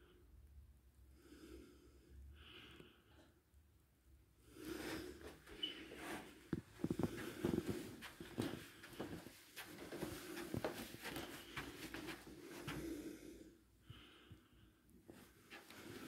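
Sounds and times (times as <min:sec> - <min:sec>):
soft footsteps on carpet: 0:04.7 - 0:13.3, 0:15.1 - 0:16.0.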